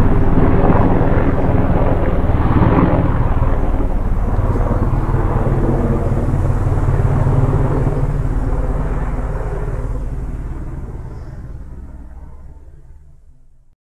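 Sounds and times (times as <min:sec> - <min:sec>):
aircraft engine rumble: 0:00.0 - 0:13.8.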